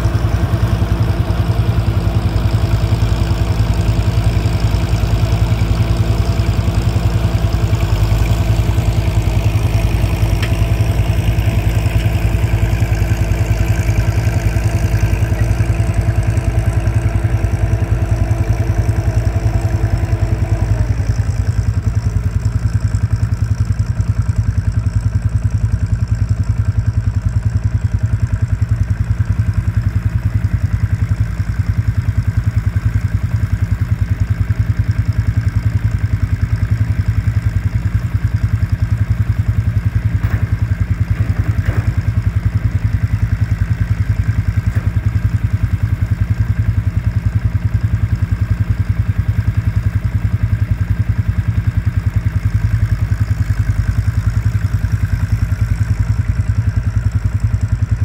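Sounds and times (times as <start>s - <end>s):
tractor engine running: 0.0s - 58.0s.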